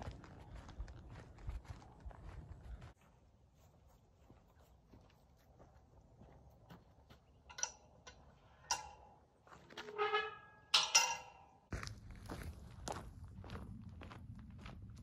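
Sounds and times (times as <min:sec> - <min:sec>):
soft footsteps: 0:00.0 - 0:07.6
metal gate latch clicks: 0:07.5 - 0:09.2, 0:09.8 - 0:11.6
metal ringing: 0:07.5 - 0:09.2, 0:09.8 - 0:11.7
metal gate clanking: 0:07.5 - 0:11.7.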